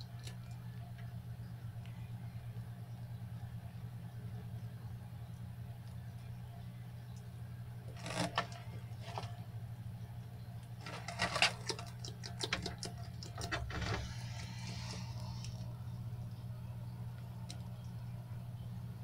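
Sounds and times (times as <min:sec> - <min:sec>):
steady low hum: 0:00.0 - 0:19.0
lizard scratching in substrate: 0:10.8 - 0:11.9.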